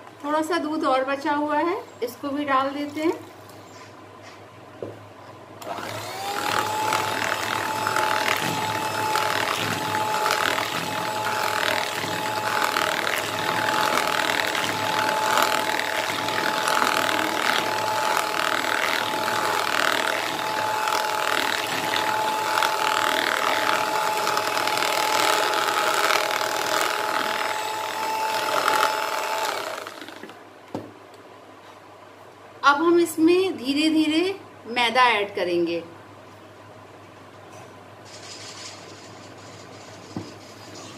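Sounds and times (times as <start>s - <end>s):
electric mixer whine: 5.6s - 30.4s.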